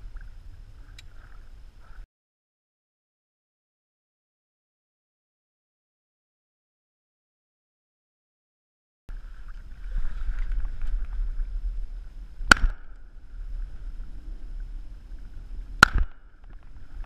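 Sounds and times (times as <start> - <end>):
wind rumble on microphone: 9.1 - 17.0
shotgun shots: 12.5 - 12.9, 15.8 - 16.2.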